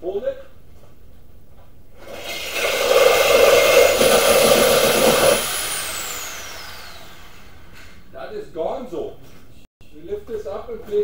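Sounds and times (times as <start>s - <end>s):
reciprocating saw cutting metal: 2.0s - 7.8s.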